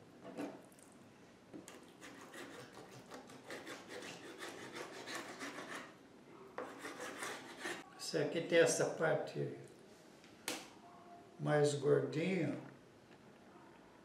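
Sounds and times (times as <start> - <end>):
knife scraping cutting board: 1.8 - 5.9, 6.6 - 7.8.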